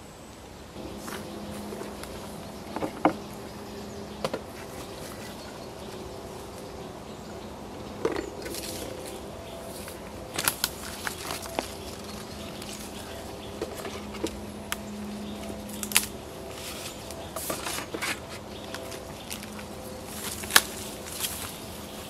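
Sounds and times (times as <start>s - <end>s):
faint low hum: 0.2s - 22.0s
rustling of grass and brush: 0.8s - 7.4s, 8.0s - 22.0s
sharp clicks and crackles: 9.8s - 15.0s, 15.7s - 16.2s.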